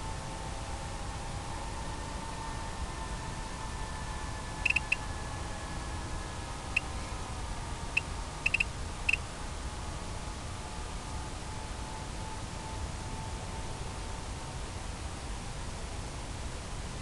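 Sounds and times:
high electronic beeps: 4.7s - 4.9s, 8.5s - 8.7s.

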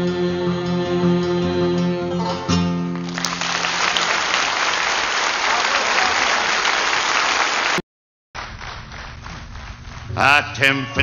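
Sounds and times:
guitar and fiddle chord: 0.0s - 3.0s
audience applause: 3.0s - 7.8s.

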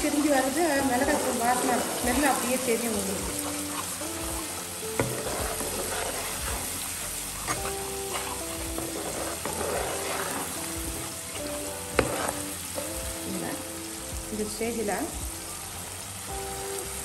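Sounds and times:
spatula stirring in pan: 0.0s - 13.2s
masala sizzling in oil: 0.0s - 17.0s
soft background music: 0.0s - 17.0s
spatula knocking on pan: 4.9s - 6.0s, 11.9s - 12.3s.

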